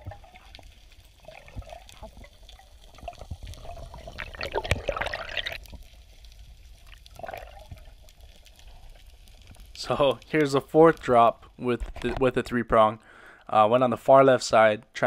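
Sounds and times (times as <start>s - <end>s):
water bubbling underwater: 0.0s - 9.3s
small crackling clicks: 0.1s - 4.9s, 5.6s - 12.6s.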